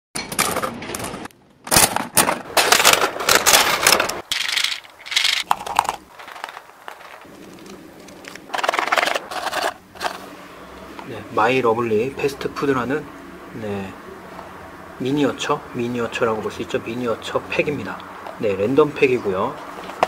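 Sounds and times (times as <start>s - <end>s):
coin crank clicking: 2.6s - 10.2s
plastic capsules rattling and crinkling: 2.6s - 10.2s.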